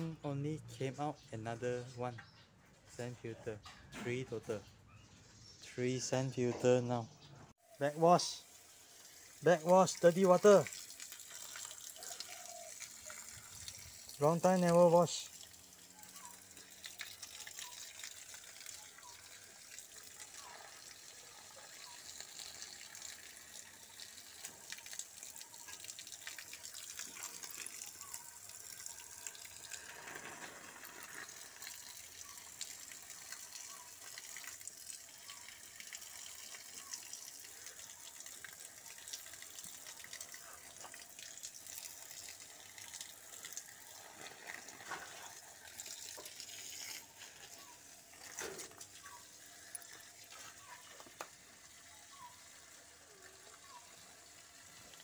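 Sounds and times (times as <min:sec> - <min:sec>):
water pouring from hose onto ground: 0:07.6 - 0:55.0.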